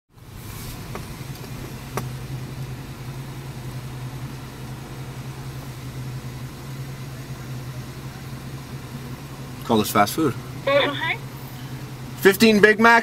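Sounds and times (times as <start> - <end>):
car engine idling: 0.1 - 13.0.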